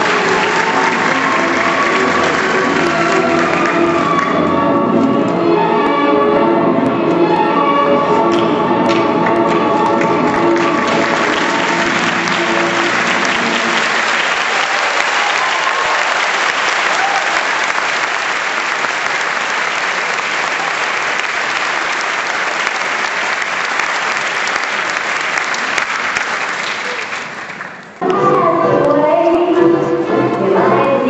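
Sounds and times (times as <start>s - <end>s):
audience applauding: 0.0s - 4.5s, 8.9s - 28.2s
music: 0.0s - 15.7s, 28.0s - 31.0s.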